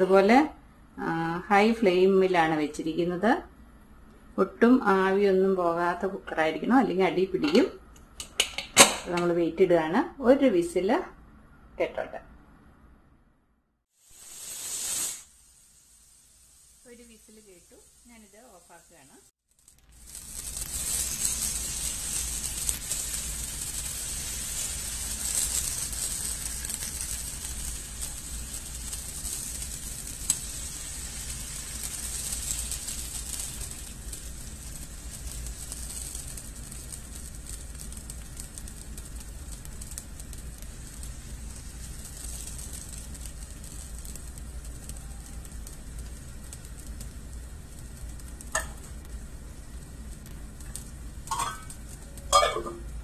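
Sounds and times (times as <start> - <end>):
batter sizzling in a pan: 13.9 - 53.0.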